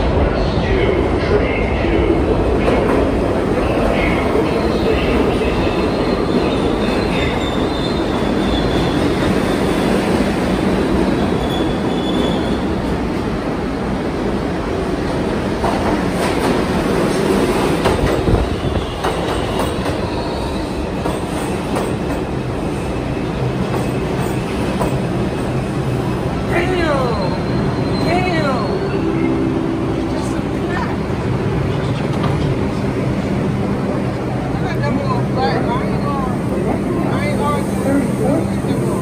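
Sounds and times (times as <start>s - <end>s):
subway train wheels rumbling: 0.0s - 39.0s
train arriving along platform: 0.0s - 39.0s.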